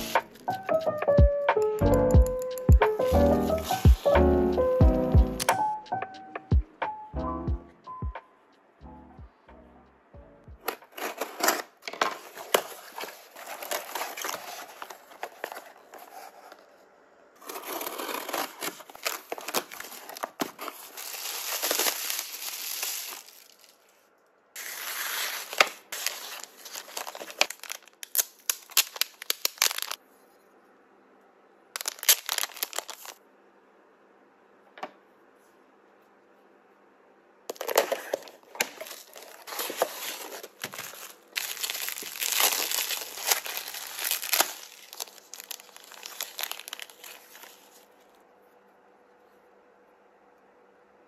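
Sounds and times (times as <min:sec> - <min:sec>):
plastic packaging crinkling and tearing: 0:00.0 - 0:00.6, 0:02.9 - 0:04.2, 0:10.6 - 0:16.7, 0:17.4 - 0:24.0, 0:24.6 - 0:30.0, 0:31.8 - 0:33.2, 0:37.5 - 0:48.0.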